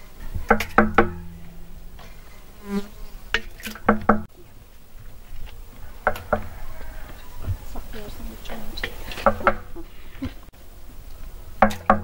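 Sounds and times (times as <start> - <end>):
insect buzzing: 1.1 - 4.2.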